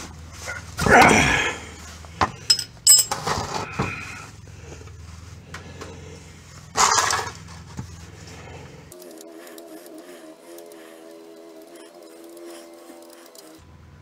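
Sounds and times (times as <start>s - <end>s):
steady low hum: 0.0s - 14.0s
metal scraping: 1.6s - 13.7s
wrench clinking against metal: 2.4s - 3.3s.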